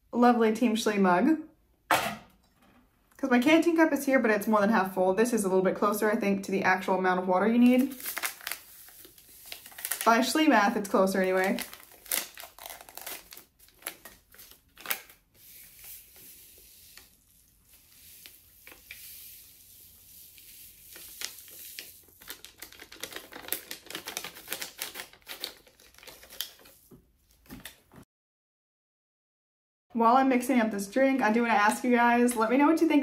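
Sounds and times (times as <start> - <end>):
foil pouch crinkling: 7.7 - 27.8
powder pouring into water: 7.9 - 10.2, 15.3 - 26.6.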